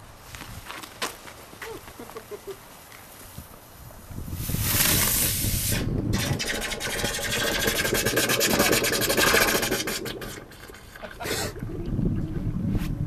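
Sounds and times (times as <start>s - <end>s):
firework crackling: 3.0s - 10.7s
firework hissing: 3.9s - 10.7s.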